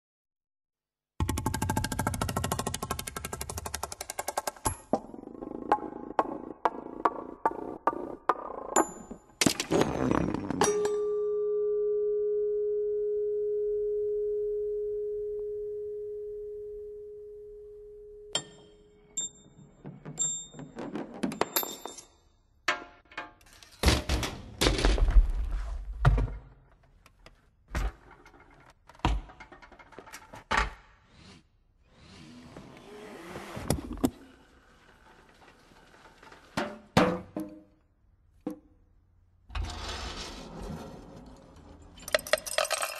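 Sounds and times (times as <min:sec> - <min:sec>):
metallic ringing tone: 0:10.8 - 0:20.6
parts rolling and rattling: 0:27.8 - 0:30.6, 0:41.2 - 0:42.9
metal parts clattering: 0:42.0 - 0:42.9.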